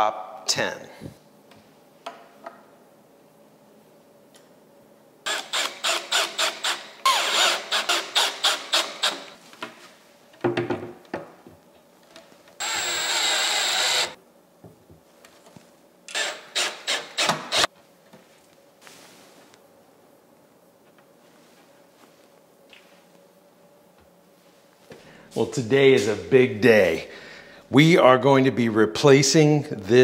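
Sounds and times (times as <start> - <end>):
cordless drill driving screws: 5.3 - 9.4, 12.6 - 14.2, 16.1 - 17.7.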